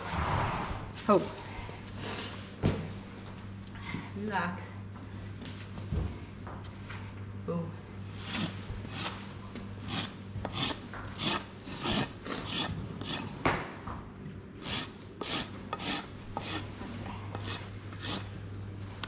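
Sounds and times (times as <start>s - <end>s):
hoof rasp filing: 8.2s - 9.2s, 9.8s - 13.4s, 14.6s - 18.4s.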